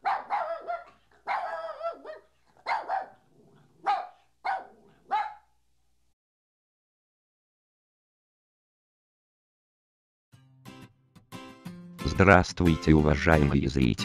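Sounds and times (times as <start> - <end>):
dog barking: 0.0 - 5.6.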